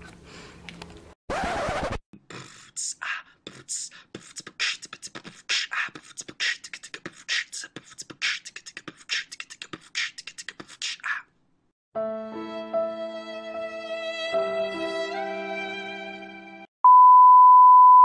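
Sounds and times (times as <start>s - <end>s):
person beatboxing: 2.1s - 11.3s.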